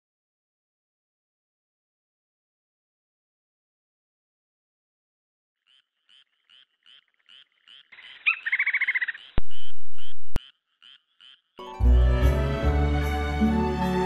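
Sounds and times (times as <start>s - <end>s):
loud trilling call: 5.6s - 11.6s
short repeating animal chirp: 5.6s - 11.6s.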